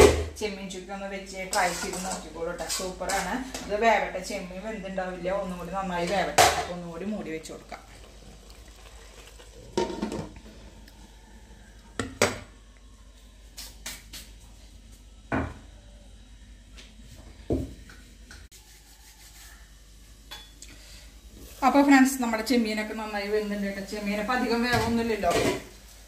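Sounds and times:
faint low hum: 2.8s - 13.6s
pots and utensils knocking: 6.0s - 6.8s, 9.8s - 10.4s, 12.0s - 12.5s.

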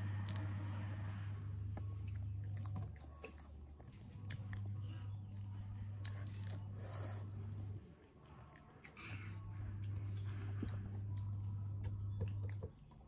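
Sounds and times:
steady low hum: 0.0s - 13.0s
person chewing food: 1.7s - 7.8s.

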